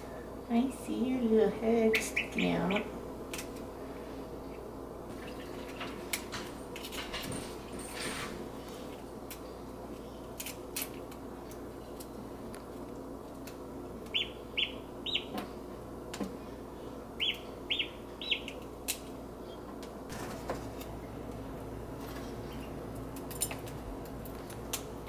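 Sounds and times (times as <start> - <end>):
duckling peeping: 1.8 - 3.0, 14.0 - 15.4, 17.2 - 18.6.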